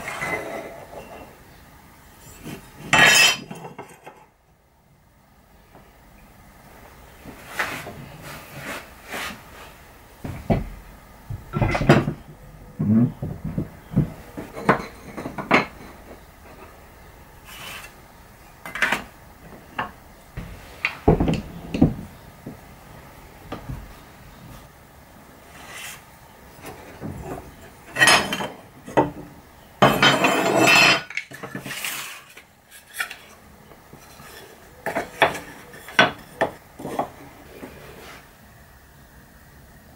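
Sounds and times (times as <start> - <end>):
tools clattering on wooden workbench: 2.4 - 4.3, 11.5 - 16.8, 26.6 - 33.3.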